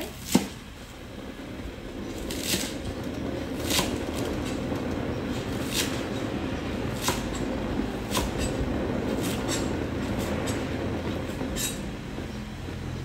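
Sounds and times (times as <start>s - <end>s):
steady low hum: 0.0s - 13.0s
knife chopping on wooden board: 7.0s - 7.4s, 8.1s - 8.6s.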